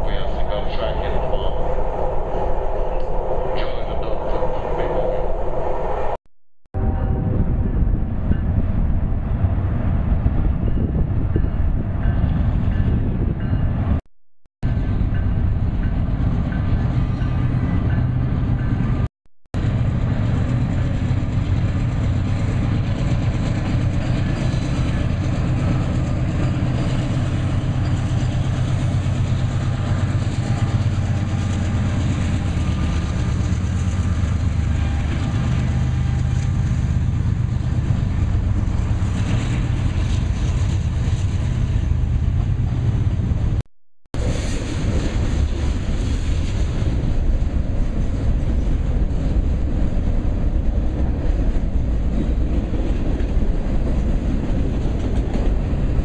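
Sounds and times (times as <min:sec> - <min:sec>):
locomotive engine drone: 0:00.0 - 0:06.2, 0:14.7 - 0:43.6
train wheels rumbling on track: 0:00.0 - 0:06.2, 0:06.8 - 0:14.0, 0:14.7 - 0:43.6, 0:44.2 - 0:56.0.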